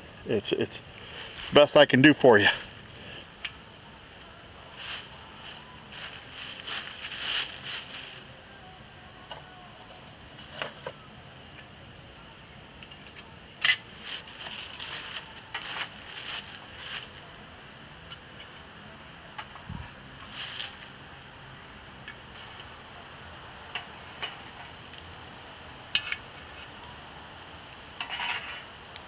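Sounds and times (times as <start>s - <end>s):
dry leaves crunching underfoot: 1.0s - 1.8s, 4.7s - 8.3s, 13.9s - 17.4s, 20.2s - 21.0s.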